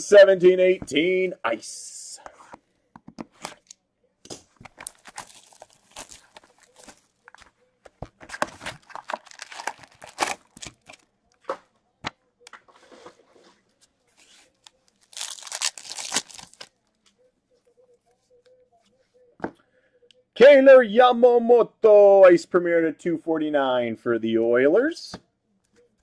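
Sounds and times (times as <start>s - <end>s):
card pack wrappers tearing: 4.7s - 7.5s, 8.3s - 11.0s, 15.0s - 16.7s.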